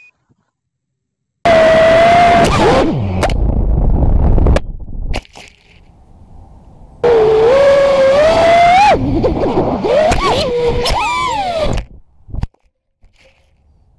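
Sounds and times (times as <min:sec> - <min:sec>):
quadcopter motor whine: 0:07.0 - 0:11.8
quadcopter motors rumbling: 0:07.0 - 0:12.1.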